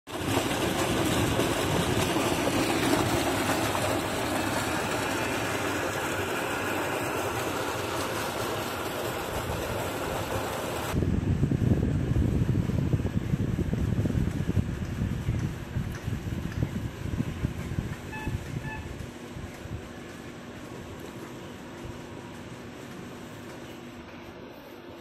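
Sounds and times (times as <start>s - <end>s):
water gushing into a tank: 0.1s - 11.0s.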